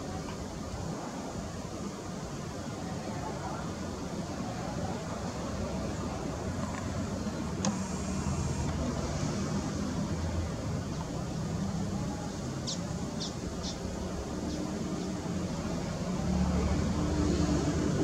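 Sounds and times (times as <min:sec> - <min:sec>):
bird chirping: 0:12.2 - 0:13.8.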